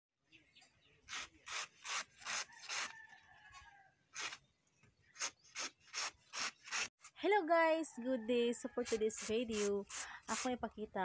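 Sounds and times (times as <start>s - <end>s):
knife rasping through banana trunk: 1.1s - 3.0s, 4.1s - 4.4s, 5.2s - 7.1s, 8.8s - 10.6s.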